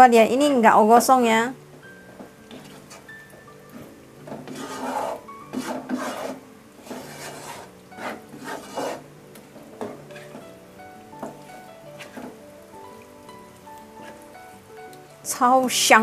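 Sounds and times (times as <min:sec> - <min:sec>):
utensil scraping a pot: 0:02.1 - 0:10.6, 0:11.2 - 0:12.4, 0:13.9 - 0:14.6.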